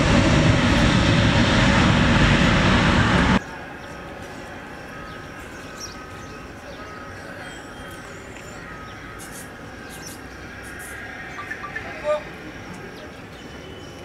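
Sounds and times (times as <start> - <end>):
distant jet engines rumbling: 0.0 - 14.0
faint high chirps: 10.9 - 12.2.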